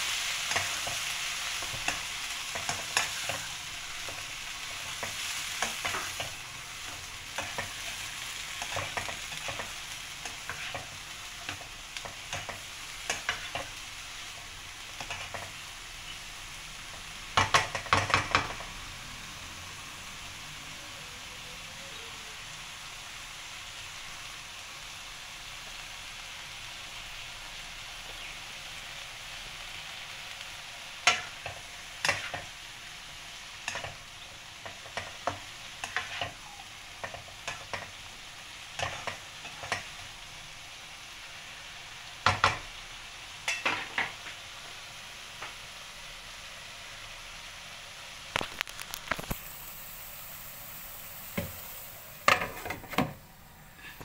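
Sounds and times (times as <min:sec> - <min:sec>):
bean sprouts sizzling in a wok: 0:00.0 - 0:54.0
spatula scraping a pan: 0:00.3 - 0:13.8, 0:31.1 - 0:32.6, 0:34.6 - 0:38.0.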